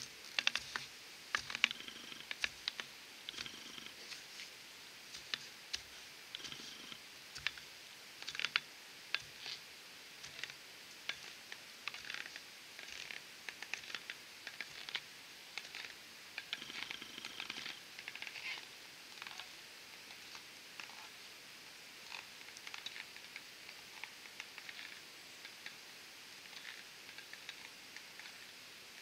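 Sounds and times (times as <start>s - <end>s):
stilts crunching snow: 10.2s - 15.0s.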